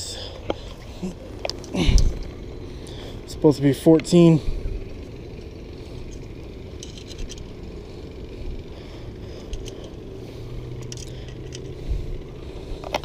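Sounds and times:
low background rumble: 0:00.0 - 0:13.0
light clicks and rustles: 0:00.4 - 0:03.0, 0:05.0 - 0:07.6, 0:09.4 - 0:10.0, 0:10.7 - 0:11.8, 0:12.8 - 0:13.0.

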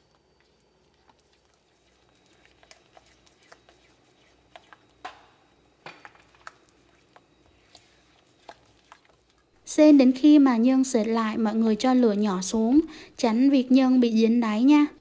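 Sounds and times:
spatula scraping frying pan: 0:01.9 - 0:04.9.

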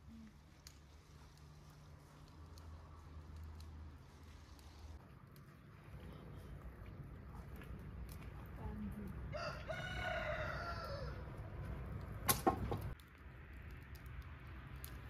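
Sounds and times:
rooster crowing: 0:09.3 - 0:11.3.

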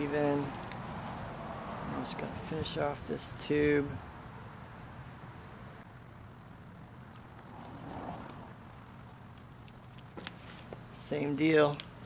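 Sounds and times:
soft rustle of gloved hands: 0:09.4 - 0:10.8.

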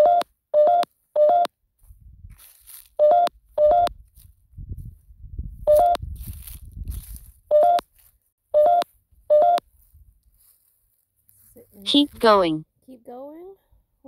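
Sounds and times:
footsteps on dry grass: 0:01.8 - 0:12.4
electronic rising beeps: 0:05.7 - 0:06.0.

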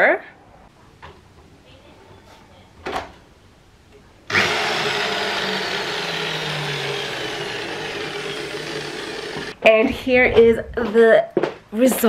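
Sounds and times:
electric power drill running: 0:04.3 - 0:09.6.

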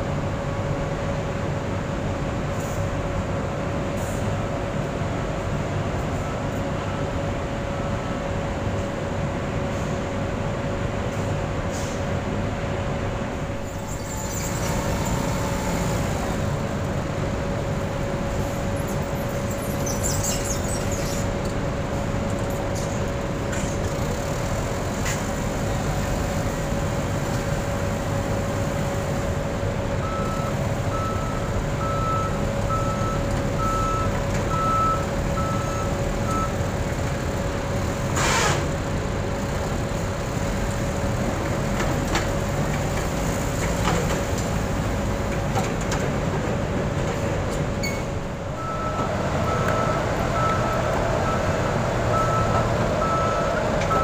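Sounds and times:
engine running with whine: 0:00.0 - 0:54.0
forklift reversing alarm beeps: 0:30.0 - 0:36.7, 0:47.9 - 0:54.0.

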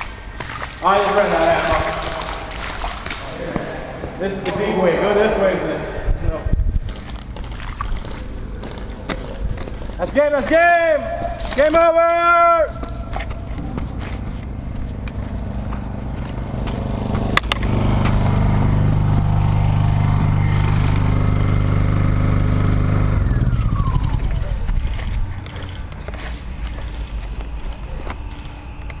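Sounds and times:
motor vehicle engine running: 0:12.7 - 0:29.0.

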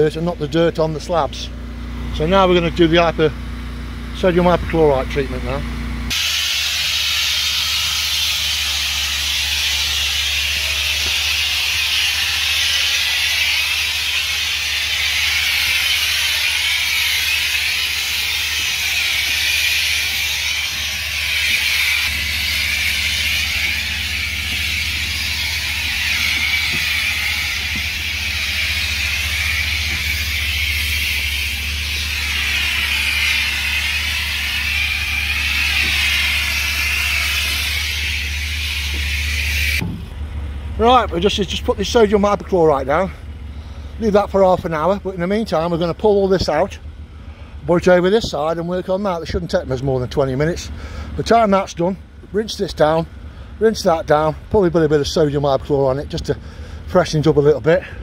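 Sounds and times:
low engine hum: 0:00.0 - 0:58.0
pressure washer spray hissing: 0:06.1 - 0:39.8.

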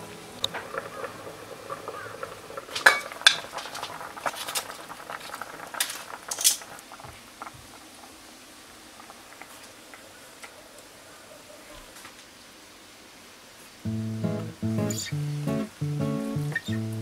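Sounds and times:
aluminium foil crinkling: 0:00.5 - 0:07.4.

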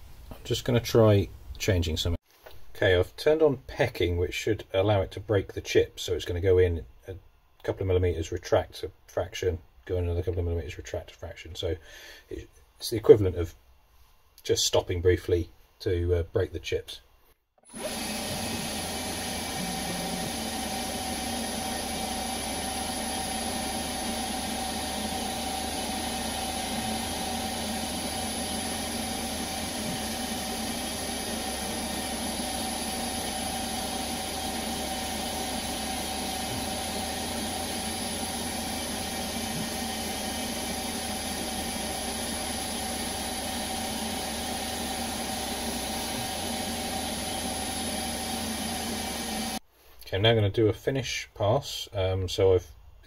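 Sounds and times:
constant high whine: 0:17.7 - 0:49.6
lathe machine hum: 0:17.7 - 0:49.6.

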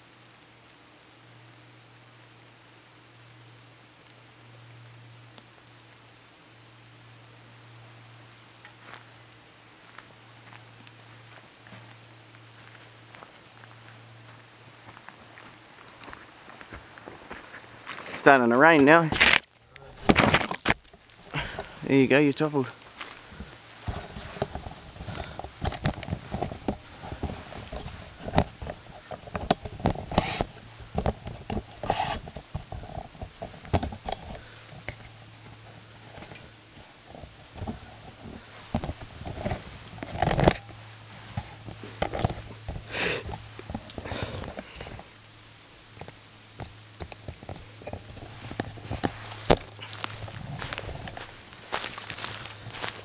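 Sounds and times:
footsteps on leaf litter: 0:09.8 - 0:25.6, 0:47.6 - 0:53.0
twigs snapping: 0:19.0 - 0:21.9, 0:22.8 - 0:35.4, 0:45.9 - 0:53.0.

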